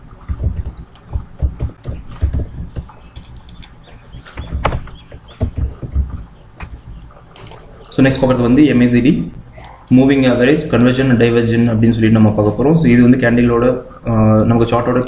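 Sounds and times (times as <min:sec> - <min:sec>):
keyboard and mouse clicks: 0:00.2 - 0:07.9, 0:09.6 - 0:11.0.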